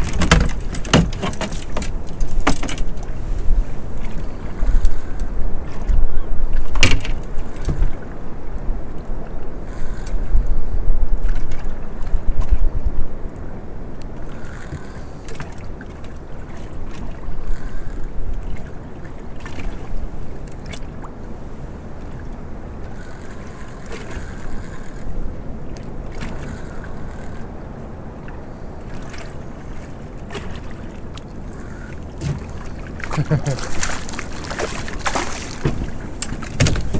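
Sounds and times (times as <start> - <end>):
water lapping against hull: 0.0 - 36.9
wind: 0.0 - 36.9
fishing reel cranking: 14.3 - 15.1, 17.5 - 18.1, 22.9 - 25.1, 26.3 - 27.5, 31.5 - 31.9.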